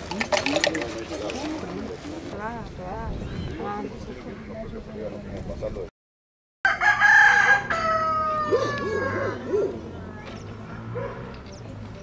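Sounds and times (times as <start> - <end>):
rooster crowing: 6.6 - 9.7.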